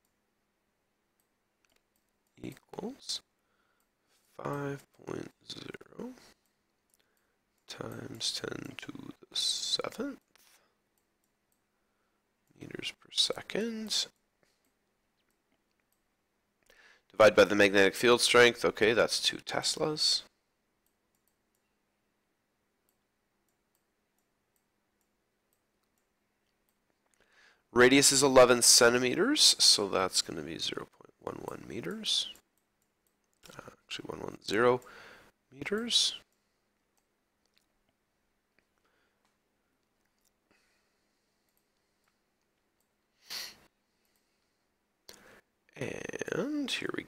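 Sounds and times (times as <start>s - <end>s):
faint clicks: 1.2s - 2.7s, 20.8s - 21.7s
person speaking: 2.3s - 3.3s, 4.3s - 6.4s, 7.6s - 10.7s, 12.5s - 14.2s, 17.1s - 20.4s, 27.7s - 32.5s, 33.3s - 36.3s, 45.1s - 47.0s
person breathing out sharply: 43.2s - 43.7s.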